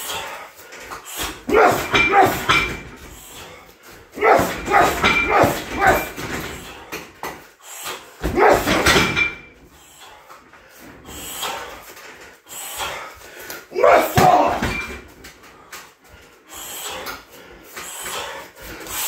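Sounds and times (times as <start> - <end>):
punches hitting heavy bag: 1.5 - 2.9, 4.2 - 6.4, 13.8 - 15.0.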